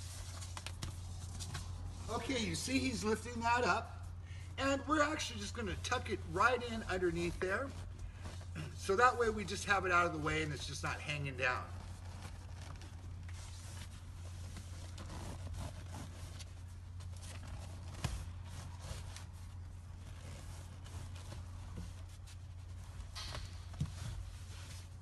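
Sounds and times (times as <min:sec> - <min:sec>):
plastic seat cover rustling: 0:05.1 - 0:09.8, 0:11.6 - 0:25.0.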